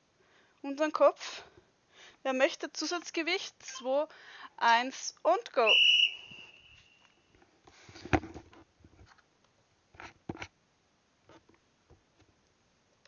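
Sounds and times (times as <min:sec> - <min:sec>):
headset handling knocks and rustles: 0:07.8 - 0:09.2.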